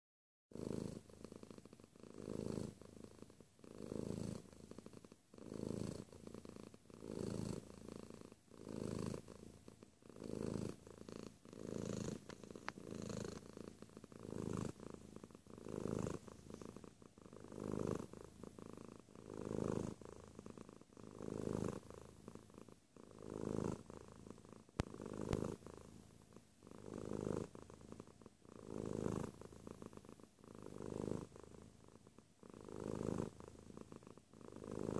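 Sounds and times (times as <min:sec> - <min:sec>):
cat purring: 0:00.5 - 0:34.9.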